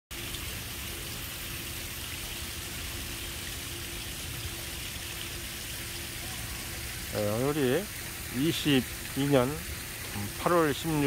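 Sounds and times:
faint steady hum: 0.1 - 11.0
outdoor hiss: 0.1 - 11.0.

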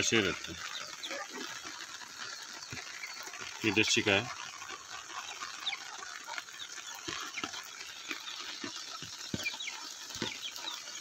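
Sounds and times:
chickens peeping and clucking: 0.0 - 11.0
rain hissing: 0.0 - 11.0.

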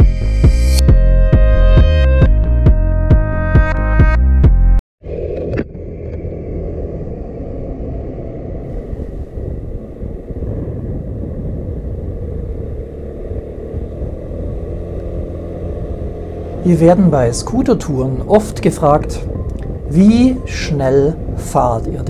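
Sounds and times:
scooter engine and road rumble: 5.0 - 22.0.

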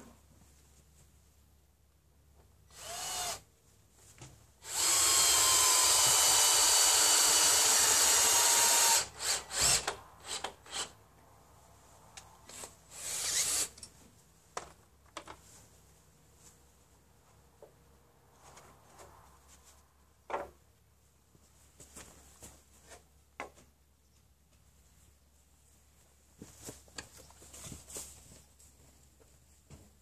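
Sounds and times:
cordless drill whining: 2.7 - 3.5, 4.6 - 11.0, 12.9 - 13.8.

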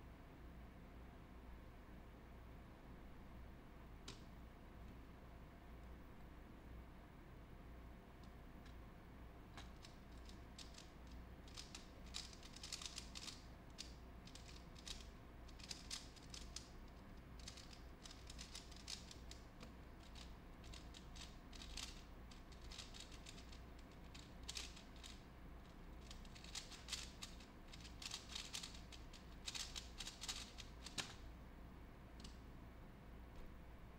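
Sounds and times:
puzzle cube clicking turns: 9.6 - 31.2.

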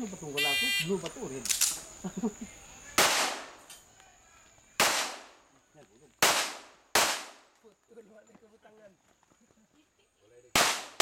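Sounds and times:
pistol shots with echo: 3.0 - 3.6, 4.8 - 5.4, 6.2 - 7.5, 10.5 - 11.0.

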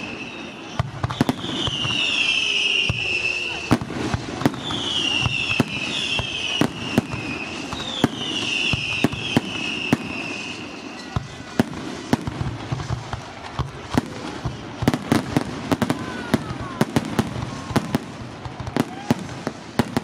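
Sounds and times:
high wavering whistle: 0.0 - 3.7, 4.6 - 11.2.

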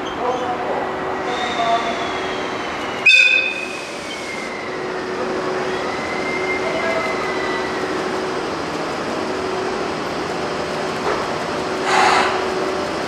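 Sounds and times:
wheels squealing on rails: 0.0 - 8.2, 11.8 - 12.5
electric locomotive humming: 0.0 - 13.0.

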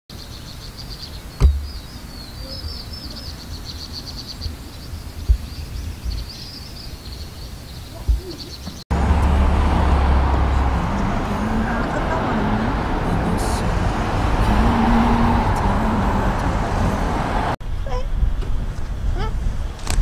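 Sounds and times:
songbirds chirping and trilling: 0.1 - 18.0
low outdoor rumble: 0.5 - 19.9
sharp thumps: 1.4 - 1.8, 5.2 - 6.3, 8.0 - 9.4.

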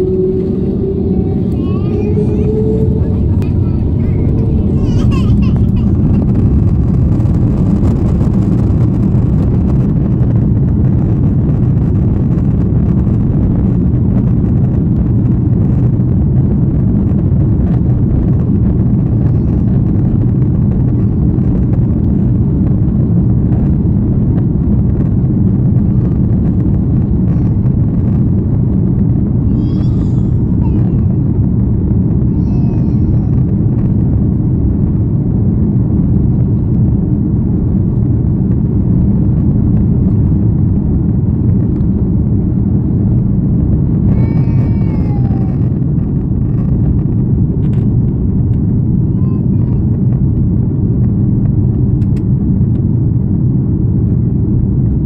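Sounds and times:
runway noise: 0.0 - 10.4
jet engines at takeoff: 0.0 - 55.0.

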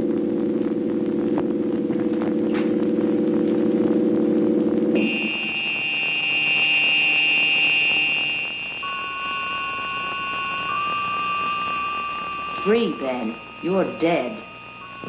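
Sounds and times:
high held notes: 0.0 - 15.0
low throbbing chord: 0.0 - 15.0
lower held note: 4.9 - 12.1.

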